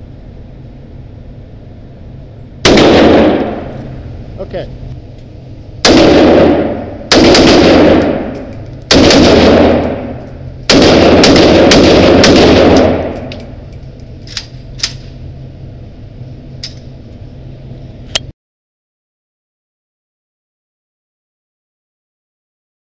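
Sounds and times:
rifle gunfire indoors: 0:02.6 - 0:04.0, 0:05.8 - 0:13.6.

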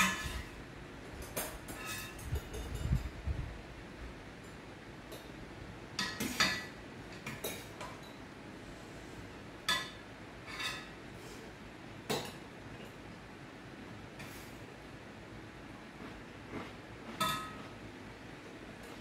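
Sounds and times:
metal utensils clinking on pot: 0:01.2 - 0:03.0.

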